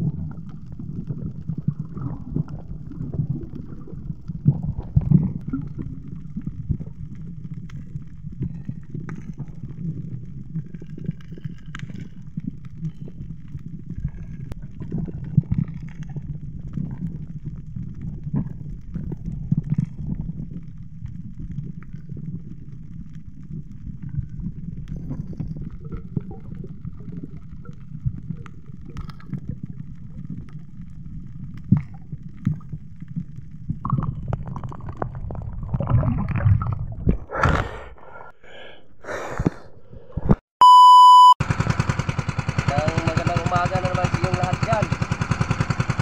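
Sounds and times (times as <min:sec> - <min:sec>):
muffled underwater rumbling: 0:00.0 - 0:38.3
steady test-tone beep: 0:40.6 - 0:41.4.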